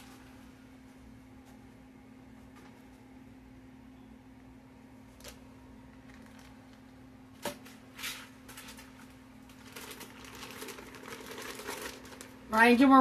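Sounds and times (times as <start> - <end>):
steady low hum: 0.0 - 13.0
plastic bag rustling and crinkling: 6.0 - 6.9, 7.9 - 12.6.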